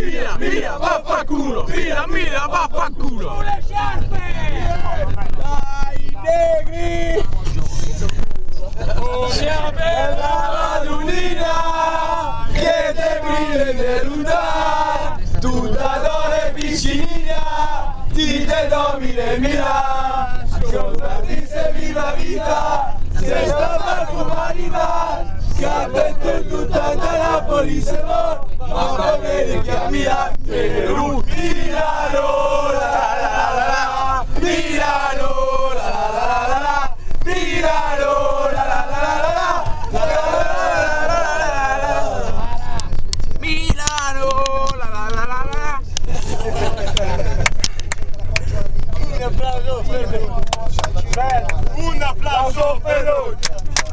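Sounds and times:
crowd chanting in unison: 0.0s - 4.7s, 9.3s - 42.7s.

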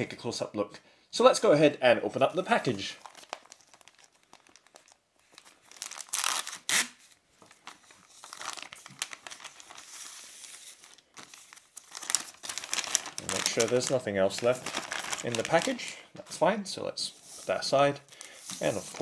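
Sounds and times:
plastic crinkling: 2.3s - 16.5s, 17.3s - 19.0s
plastic bag ripping: 3.0s - 7.0s, 8.2s - 15.9s.

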